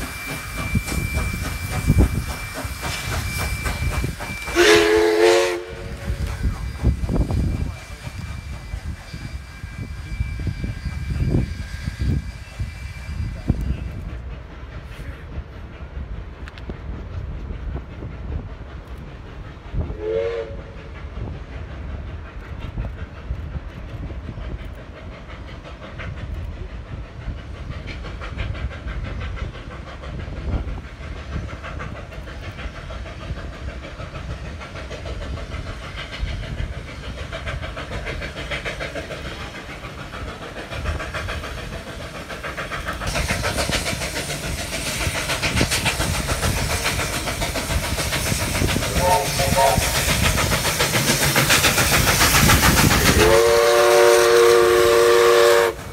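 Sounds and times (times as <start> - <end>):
wavering steam whistle: 0.0 - 14.1, 19.9 - 21.0, 35.8 - 55.9
steam locomotive exhaust chuffing: 0.0 - 55.9.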